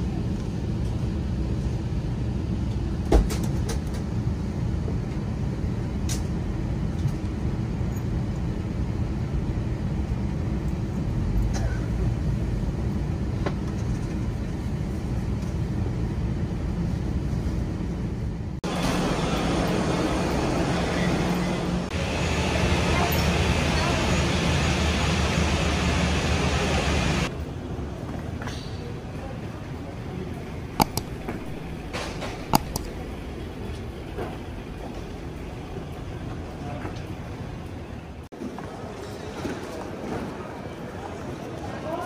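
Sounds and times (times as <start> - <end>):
faint click: 30.8 - 31.9
sharp clicks: 30.8 - 33.2.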